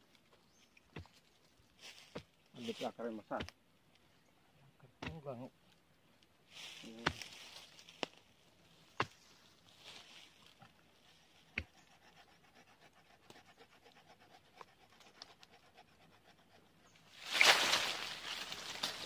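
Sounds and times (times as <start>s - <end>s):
rough scraping rustle: 0.0s - 3.3s, 6.4s - 11.4s, 17.0s - 19.0s.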